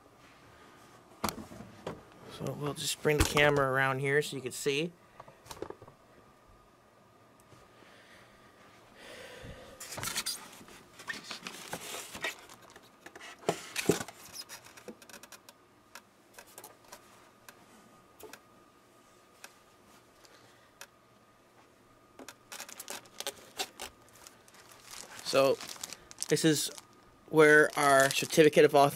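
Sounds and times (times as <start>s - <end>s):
soft rustle: 22.6s - 28.6s.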